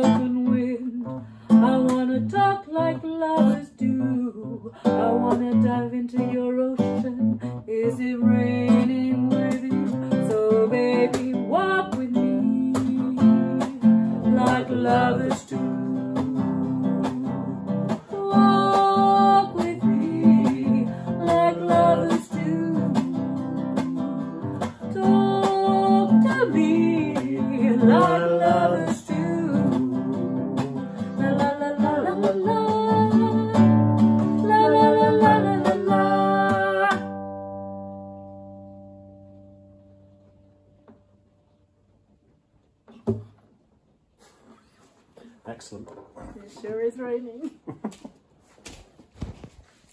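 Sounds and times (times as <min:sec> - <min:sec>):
woman and man singing: 0:00.0 - 0:37.1
acoustic guitar strumming: 0:08.3 - 0:41.2.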